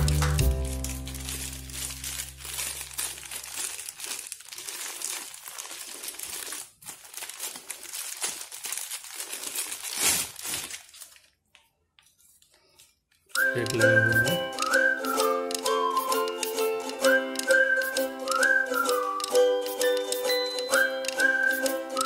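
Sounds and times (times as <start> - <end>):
plastic packaging crinkling: 0.0 - 15.6.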